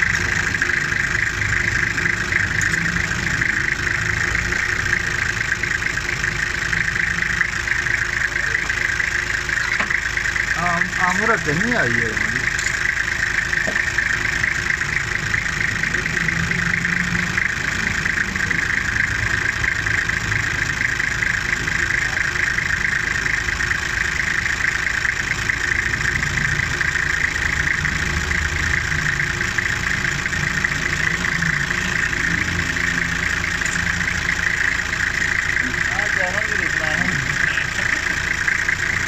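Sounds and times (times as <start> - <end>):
diesel engine idling: 0.0 - 39.0.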